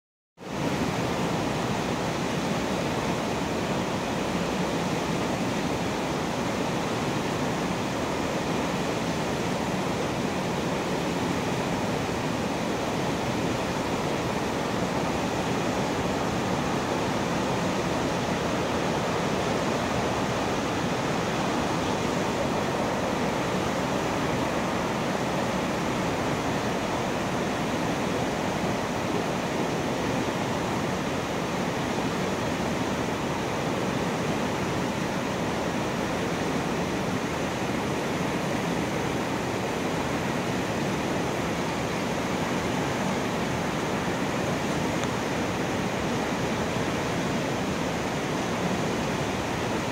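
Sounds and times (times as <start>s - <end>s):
river water rushing through sluice: 0.4s - 49.9s.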